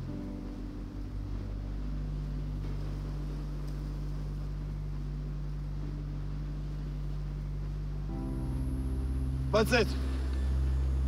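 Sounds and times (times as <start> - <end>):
low hum: 0.0 - 11.0
soft hiss: 0.0 - 11.0.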